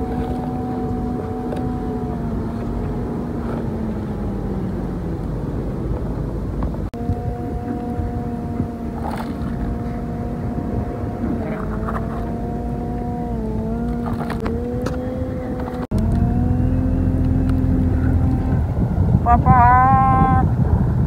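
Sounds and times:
motor droning: 0.0s - 19.9s.

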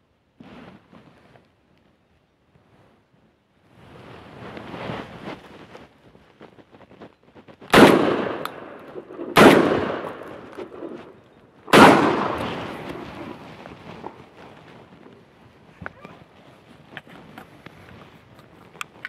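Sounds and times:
shotgun shots echoing: 7.7s - 13.4s.

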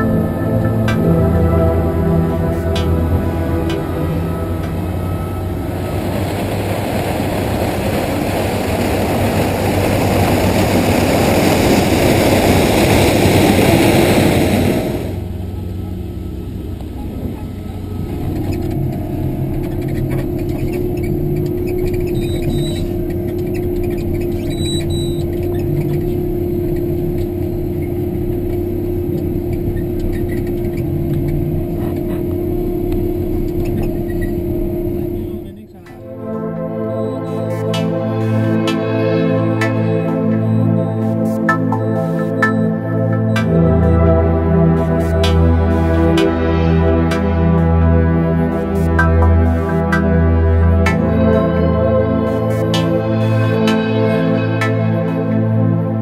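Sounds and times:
engine drone from inside cab: 0.0s - 56.0s
harvester engine and machinery din: 0.0s - 56.0s
steady whine: 0.0s - 56.0s.

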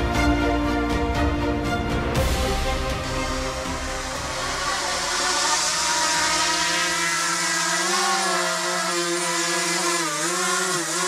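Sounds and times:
drone propellers whining: 2.5s - 11.0s.

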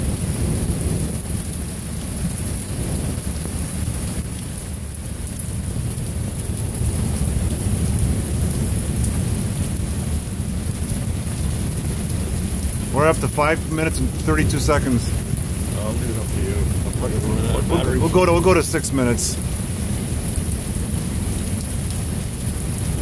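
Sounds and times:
steady rain falling: 0.0s - 23.0s.

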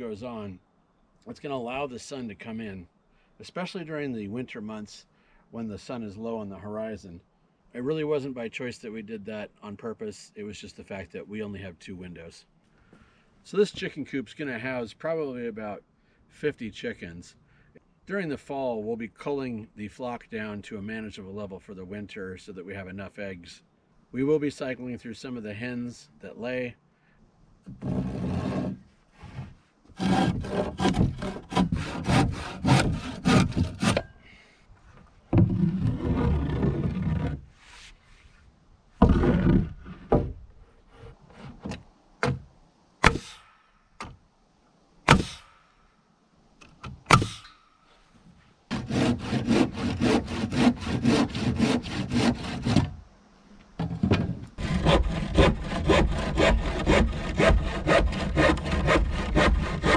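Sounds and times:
handsaw cutting wood: 27.8s - 34.1s, 48.7s - 53.0s, 54.6s - 59.9s
sharp knocks: 43.0s - 44.2s, 45.1s - 45.6s, 47.1s - 47.5s.

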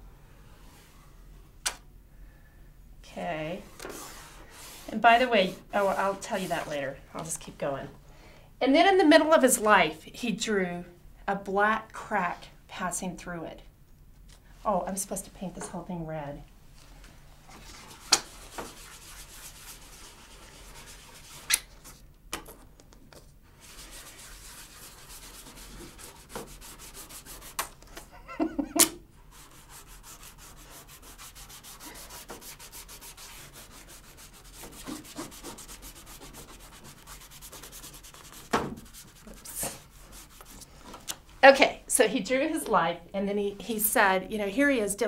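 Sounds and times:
paint applicator rubbing on paper: 17.6s - 21.6s, 23.6s - 27.6s, 29.3s - 40.7s.

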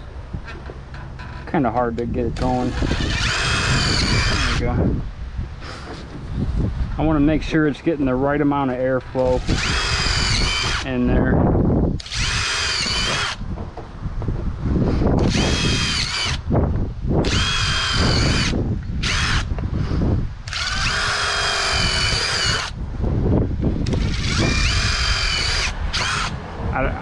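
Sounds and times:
power drill whine: 2.4s - 4.6s, 9.3s - 10.8s, 12.0s - 13.4s, 15.2s - 16.4s, 17.2s - 19.5s, 20.4s - 22.8s, 23.8s - 26.4s.

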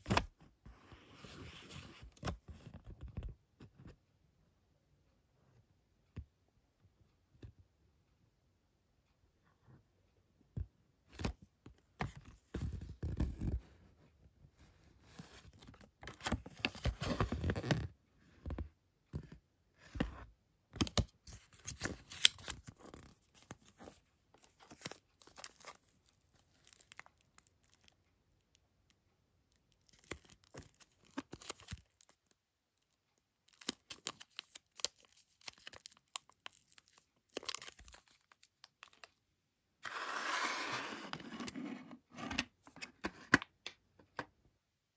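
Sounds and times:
paper and plastic crinkling: 21.3s - 27.9s, 33.5s - 39.2s.

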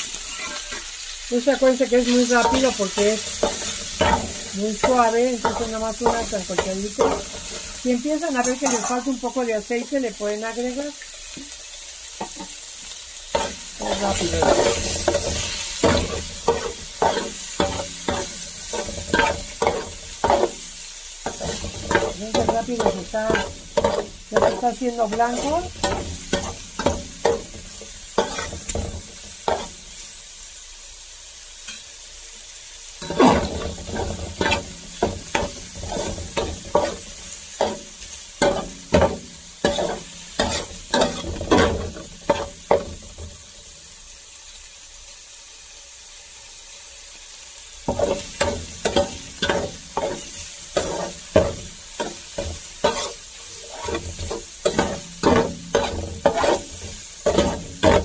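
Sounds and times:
fish sizzling in a pan: 0.0s - 58.0s
metal spatula scraping and tapping: 0.2s - 0.8s, 8.4s - 9.0s, 13.3s - 20.6s, 21.2s - 27.6s, 28.2s - 29.7s, 38.4s - 42.9s, 47.9s - 58.0s.

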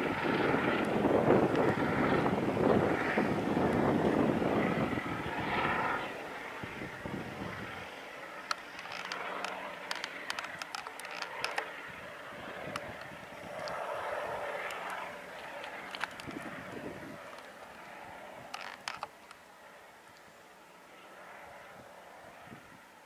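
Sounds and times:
helicopter flying overhead: 0.0s - 23.0s
sharp clicks: 8.4s - 11.8s, 14.6s - 19.4s.

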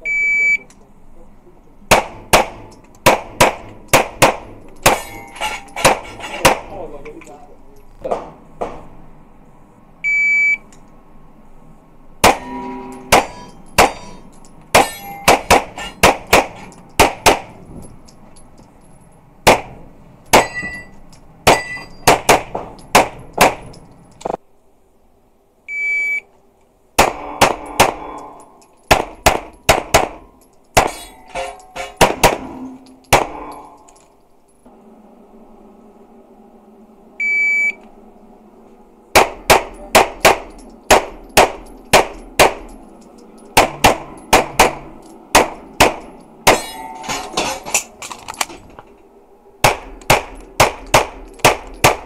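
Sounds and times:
pistol shots: 1.9s - 5.2s, 12.2s - 17.6s, 19.4s - 20.7s, 21.4s - 23.8s, 27.0s - 28.2s, 28.9s - 31.1s, 31.8s - 33.6s, 39.1s - 42.8s, 43.6s - 46.8s, 49.6s - 52.0s
steel targets ringing: 4.5s - 6.5s, 12.2s - 17.6s, 20.2s - 22.2s, 27.1s - 34.1s, 39.2s - 48.0s.

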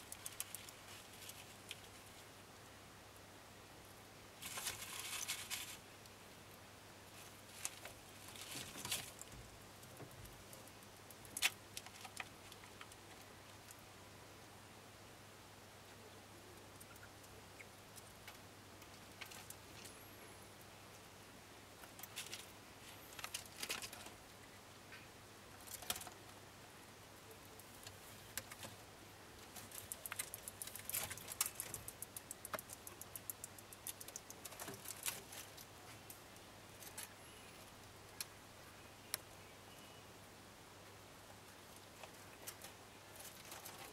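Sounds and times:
faint low hum: 0.0s - 43.9s
small animals scrabbling in bedding: 4.4s - 5.8s.

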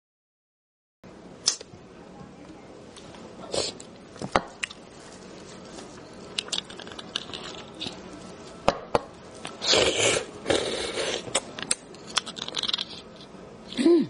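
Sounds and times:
loud slurp: 9.6s - 11.4s.

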